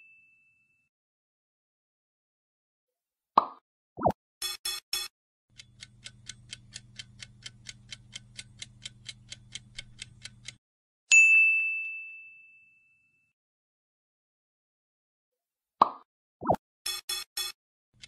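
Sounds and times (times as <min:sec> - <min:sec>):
countdown clock ticking: 0:04.4 - 0:10.6, 0:16.9 - 0:18.0
bright ding: 0:11.1 - 0:13.3
quick blips: 0:15.8 - 0:17.6.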